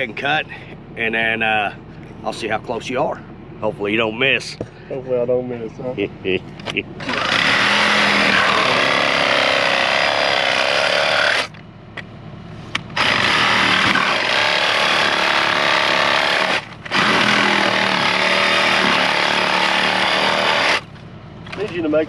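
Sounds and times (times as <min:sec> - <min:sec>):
reciprocating saw cutting plastic: 0:07.0 - 0:11.6, 0:12.8 - 0:21.0.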